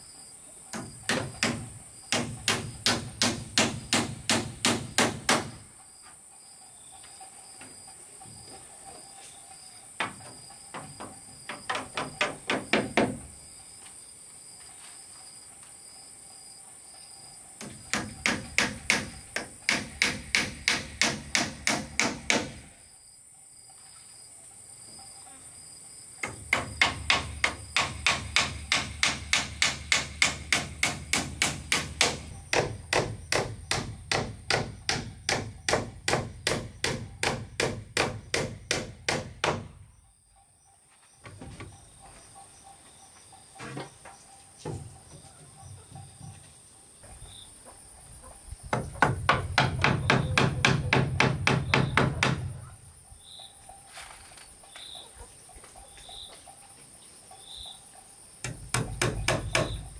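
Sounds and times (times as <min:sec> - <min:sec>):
high insect trill: 0:00.0 - 0:59.9
hammer striking wood: 0:00.7 - 0:05.6, 0:10.0 - 0:13.3, 0:17.6 - 0:22.7, 0:26.2 - 0:39.8, 0:48.7 - 0:52.6, 0:58.4 - 0:59.9.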